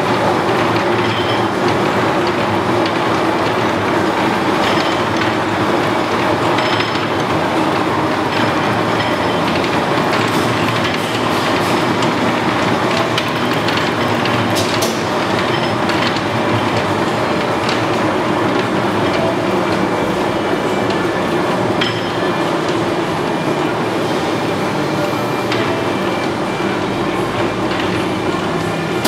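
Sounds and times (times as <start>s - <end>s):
lathe running: 0.0s - 29.0s.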